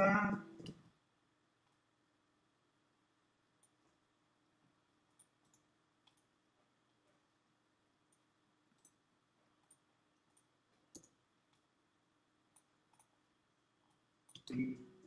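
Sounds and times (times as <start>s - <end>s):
computer mouse clicks: 3.6s - 4.0s, 5.1s - 6.3s, 8.1s - 11.7s, 12.5s - 13.2s, 13.8s - 14.8s.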